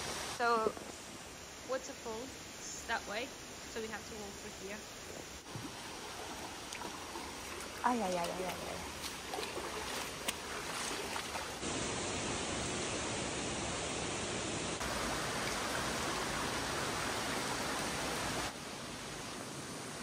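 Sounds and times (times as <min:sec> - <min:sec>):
waterfall rushing: 0:11.6 - 0:18.6.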